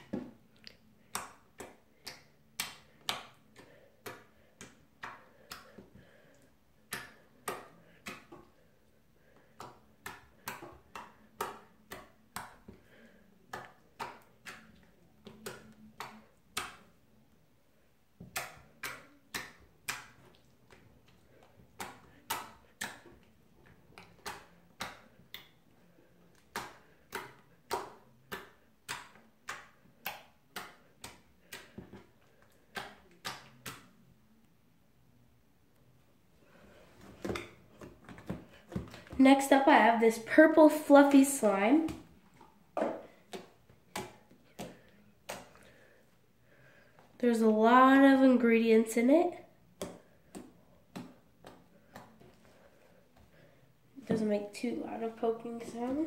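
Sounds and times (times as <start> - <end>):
finger poking wet slime: 32.7 - 33.8.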